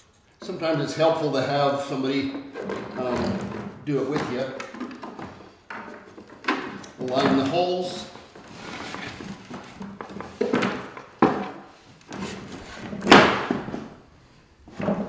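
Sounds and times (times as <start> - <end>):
wooden knocks and thumps: 2.3 - 14.0, 14.7 - 15.0.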